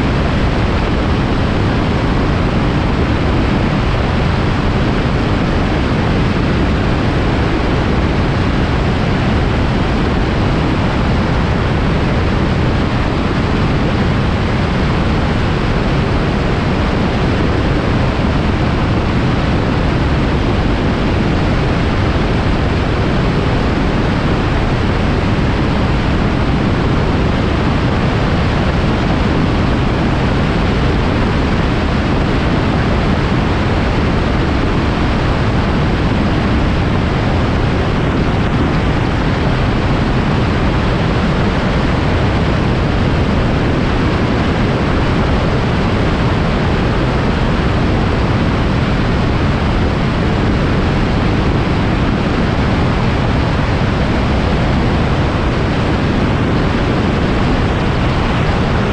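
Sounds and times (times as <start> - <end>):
aircraft engine noise: 0.0 - 58.9
wind buffeting microphone: 0.0 - 58.9.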